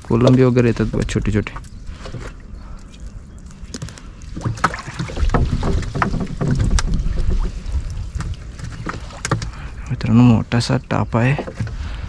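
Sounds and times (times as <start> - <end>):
water splashing: 0.0 - 10.0
wet net being hauled: 3.7 - 10.0
knocks against boat: 4.4 - 7.5.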